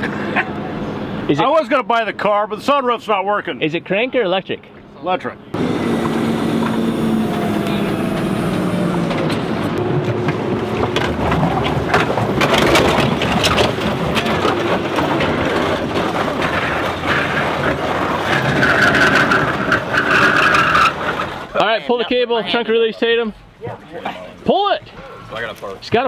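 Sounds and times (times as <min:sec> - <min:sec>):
tow truck engine running: 0:05.6 - 0:21.5
car scraping over concrete: 0:05.6 - 0:21.6.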